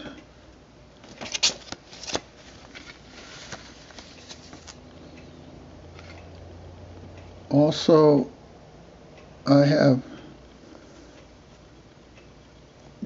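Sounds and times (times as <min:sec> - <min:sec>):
paper and card rustling: 0:01.0 - 0:04.8.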